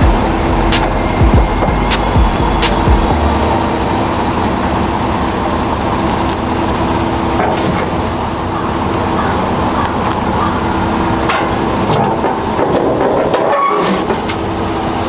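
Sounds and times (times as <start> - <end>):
truck engine humming: 0.0 - 15.0
sharp clicks: 1.9 - 3.6.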